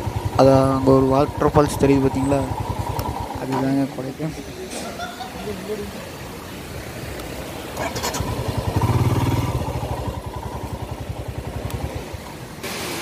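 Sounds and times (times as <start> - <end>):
motorcycle engine running: 0.0 - 4.5, 7.5 - 12.7
waterfall rushing: 2.0 - 13.0.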